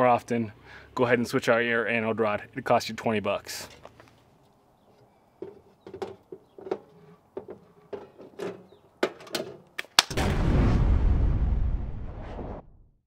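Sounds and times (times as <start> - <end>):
sharp clicks and knocks: 5.4 - 10.1
sharp crack: 9.7 - 12.3.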